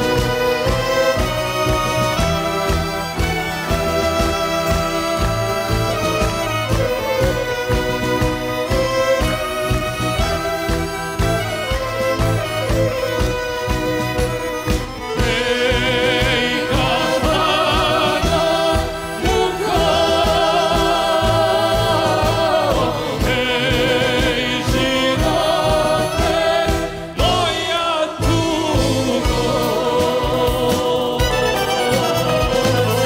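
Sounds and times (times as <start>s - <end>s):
folk band playing: 0.0s - 33.0s
man singing: 15.0s - 33.0s.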